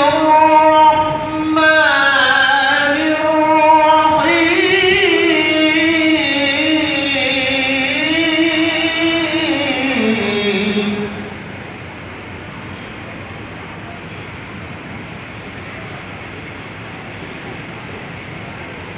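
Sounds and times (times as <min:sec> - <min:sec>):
person chanting recitation: 0:00.0 - 0:11.5.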